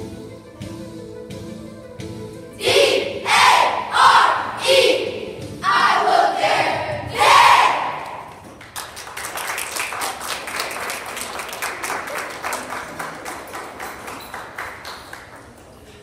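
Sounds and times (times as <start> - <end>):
group of people applauding: 8.1 - 15.8.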